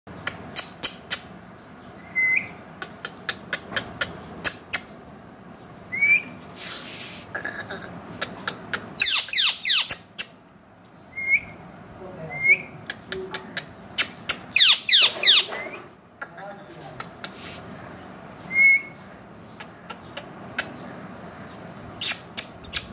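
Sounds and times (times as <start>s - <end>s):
parakeet screeching: 9.0s - 10.0s, 14.5s - 15.8s
parakeet whistling: 9.0s - 10.0s, 14.1s - 15.8s.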